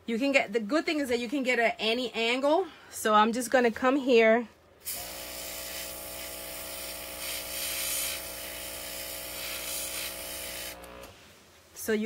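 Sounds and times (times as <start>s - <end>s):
airbrush spraying hiss: 4.8s - 10.8s
compressor humming: 4.8s - 11.4s.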